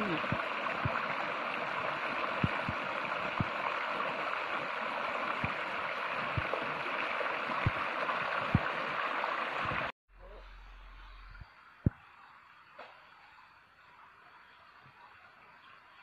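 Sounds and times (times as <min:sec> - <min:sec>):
stream babbling over stones: 0:00.0 - 0:09.9
soft low thumps: 0:02.4 - 0:03.6.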